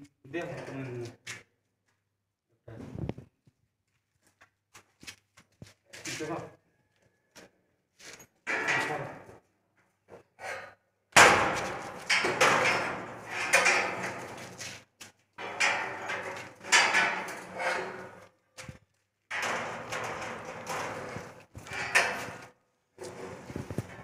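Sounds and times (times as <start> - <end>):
steel rolling shutter banging: 8.5 - 9.3, 11.2 - 14.8, 15.4 - 18.3, 19.3 - 24.0.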